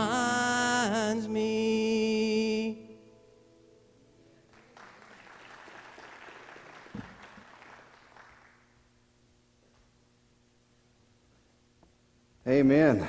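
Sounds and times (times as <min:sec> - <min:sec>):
people clapping: 0:04.5 - 0:08.9.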